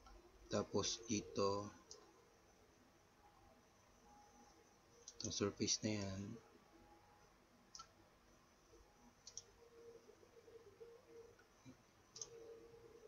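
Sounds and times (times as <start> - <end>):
computer mouse clicks: 5.0 - 5.4, 7.7 - 8.0, 9.1 - 9.6, 11.3 - 12.6.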